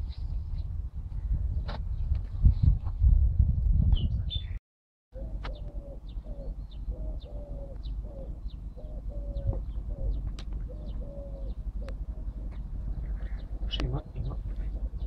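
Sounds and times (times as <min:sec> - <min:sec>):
low wind rumble: 0:00.0 - 0:04.6, 0:05.2 - 0:15.0
birds calling and chirping: 0:04.0 - 0:15.0.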